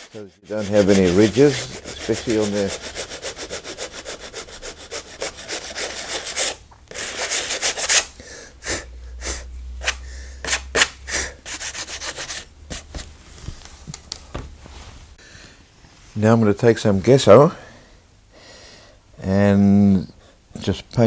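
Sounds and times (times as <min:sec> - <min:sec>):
nail file scraping canvas: 0:00.0 - 0:08.1, 0:09.3 - 0:13.1.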